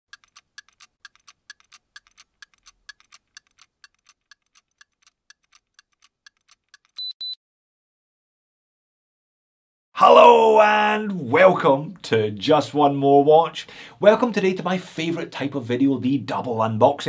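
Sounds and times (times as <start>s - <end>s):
watch ticking: 0.1s - 7.3s
short high electronic beeps: 7.0s - 7.4s.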